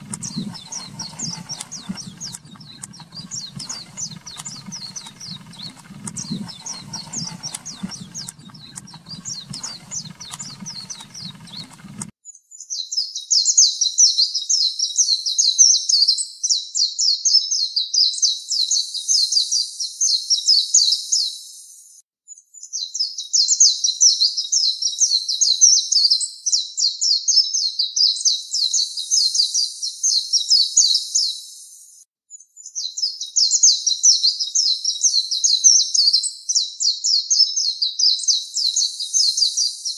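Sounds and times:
low hum: 0:00.0 - 0:12.1.

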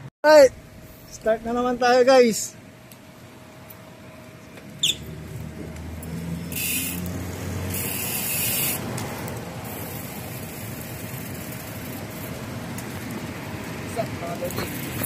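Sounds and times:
cars driving past: 0:04.8 - 0:13.9.

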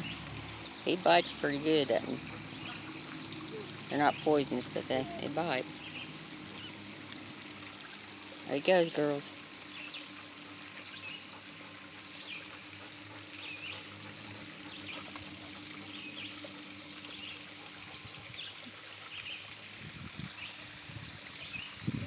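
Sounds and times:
creek water trickling over rocks: 0:00.0 - 0:22.0
bird chirping: 0:05.0 - 0:06.8.

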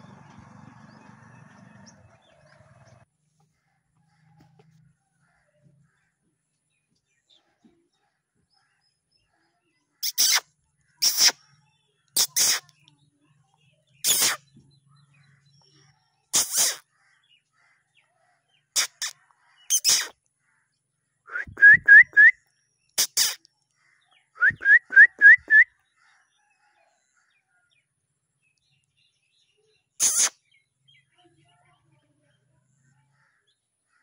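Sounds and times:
bird chirping: 0:00.0 - 0:34.0
short hissing bursts: 0:12.2 - 0:12.7, 0:14.0 - 0:14.4, 0:16.4 - 0:16.8, 0:23.0 - 0:23.4, 0:30.0 - 0:30.3.

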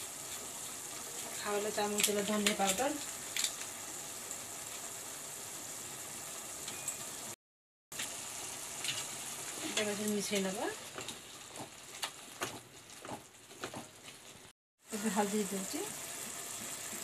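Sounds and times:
masala sizzling in oil: 0:00.0 - 0:17.0
spatula stirring and scraping: 0:10.8 - 0:14.5.

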